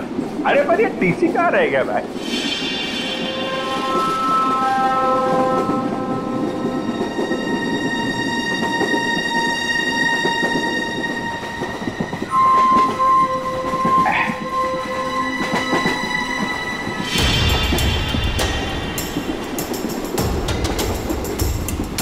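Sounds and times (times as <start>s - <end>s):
train rattling rumble: 0.0s - 22.0s
train horn blasts: 2.2s - 8.4s, 10.2s - 17.8s.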